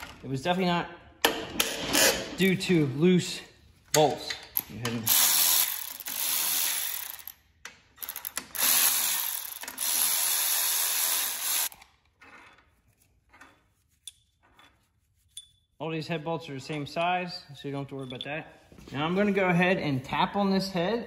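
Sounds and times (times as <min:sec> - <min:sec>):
electric ratchet whirring: 0:05.1 - 0:07.4, 0:08.0 - 0:11.8.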